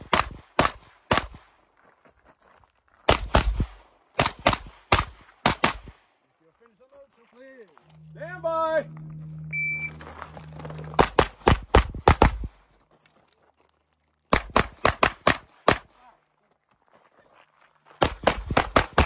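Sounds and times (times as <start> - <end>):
rapid pistol shots: 0.0 - 1.4, 3.1 - 6.0, 11.0 - 12.5, 14.3 - 16.0, 18.0 - 19.0.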